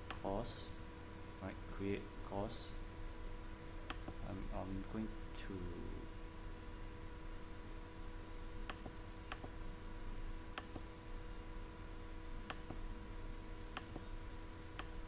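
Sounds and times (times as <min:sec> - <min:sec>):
faint steady hum: 0:00.0 - 0:15.0
computer mouse clicking: 0:08.7 - 0:09.5.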